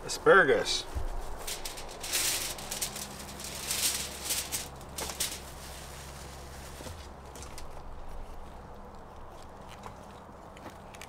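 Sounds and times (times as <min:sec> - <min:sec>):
plastic bag and foil crinkling: 0:00.9 - 0:09.6.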